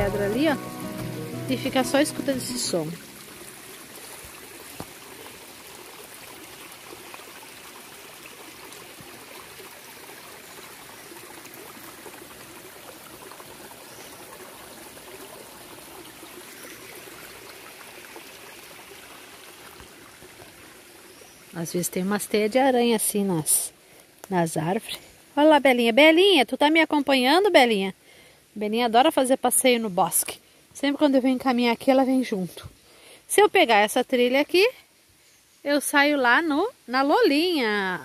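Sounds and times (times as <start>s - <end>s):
stream babbling over rocks: 0.0s - 27.8s.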